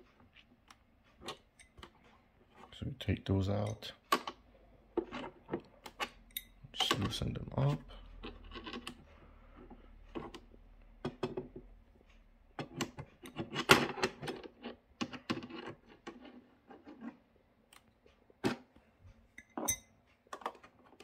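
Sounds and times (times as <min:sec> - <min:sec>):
wrench clicking and scraping on metal: 0:08.1 - 0:09.1.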